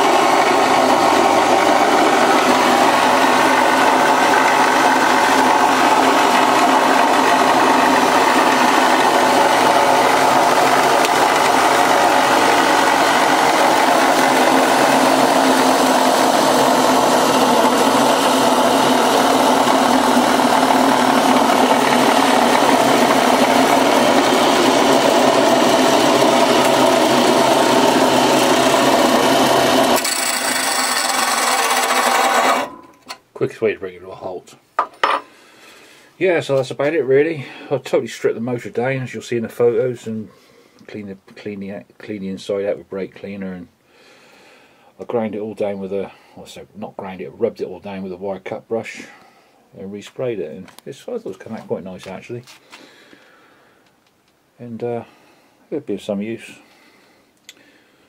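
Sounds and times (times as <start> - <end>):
bench grinder running: 0.0 - 33.2
grinding metal: 0.0 - 33.2.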